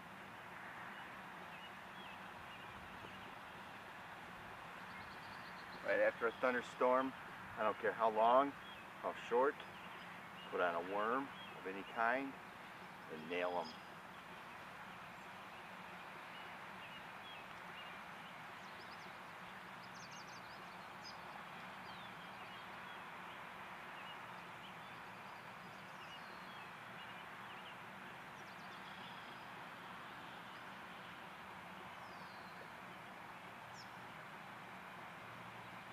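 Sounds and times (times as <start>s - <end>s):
small birds chirping: 0.8s - 35.9s.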